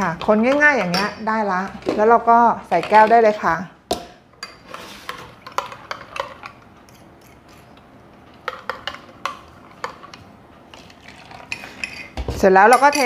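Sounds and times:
spoon clinking on glassware: 11.5s - 13.0s.

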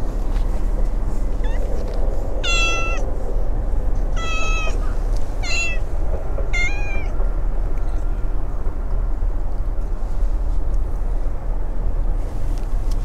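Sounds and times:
steady low rumble: 0.0s - 13.0s
cat meowing: 1.4s - 1.7s, 2.4s - 3.0s, 4.1s - 5.9s, 6.5s - 7.2s.

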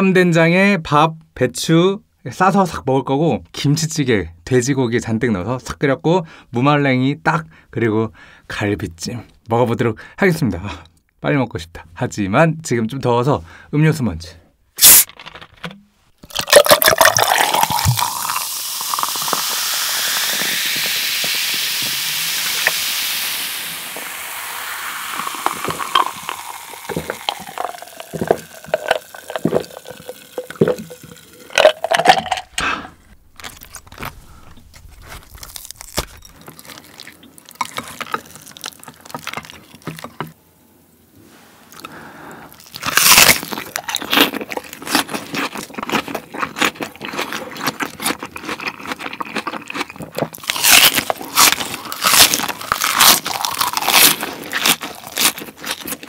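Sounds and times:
crunch of cabbage leaf: 14.8s - 15.7s, 24.0s - 40.1s, 42.5s - 56.0s
cola fizzing over ice: 16.2s - 32.6s
cola pouring into glass jar: 16.2s - 32.6s, 35.5s - 39.9s, 50.4s - 55.4s
sipping and swallowing: 16.2s - 40.1s, 41.7s - 56.0s.

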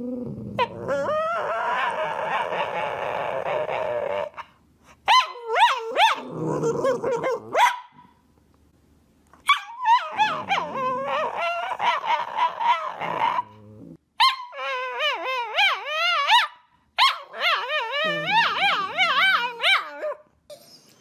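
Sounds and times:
dog yowling and whining: 0.0s - 4.5s, 5.1s - 7.8s, 9.4s - 13.6s, 14.2s - 20.9s.

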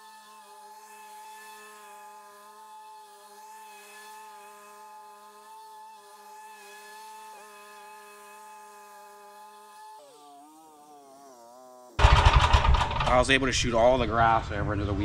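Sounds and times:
lawn mower engine drone: 12.0s - 15.0s.

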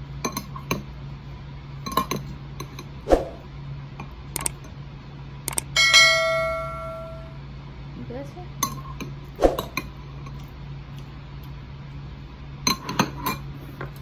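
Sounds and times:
ringing clink: 5.7s - 7.4s.

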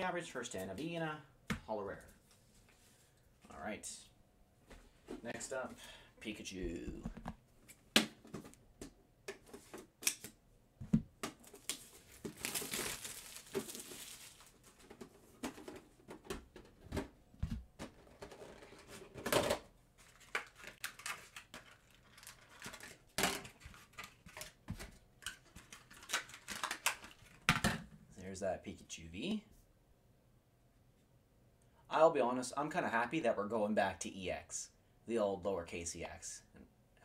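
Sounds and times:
plastic crinkling and tearing: 11.4s - 14.9s.

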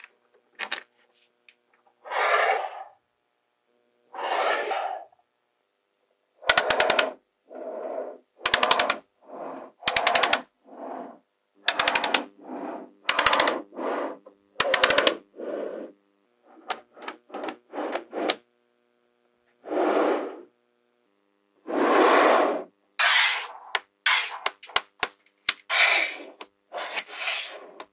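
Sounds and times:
balls sliding and rolling: 2.0s - 3.0s, 4.1s - 5.2s, 6.5s - 11.2s, 11.8s - 18.4s, 19.6s - 20.5s, 21.6s - 24.8s, 25.5s - 27.9s
scraping sounds: 4.2s - 5.0s, 23.0s - 24.5s, 25.7s - 27.9s
magnetic balls clicking together: 6.4s - 7.2s, 8.4s - 9.1s, 9.8s - 10.5s, 11.6s - 12.3s, 13.0s - 13.7s, 14.6s - 15.3s, 16.6s - 18.4s, 23.6s - 27.9s.

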